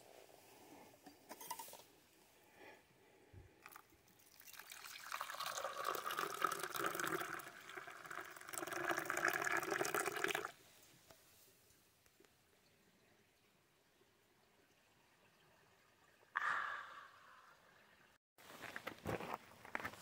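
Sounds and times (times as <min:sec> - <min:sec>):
hot water pouring into mug: 0:03.6 - 0:10.6.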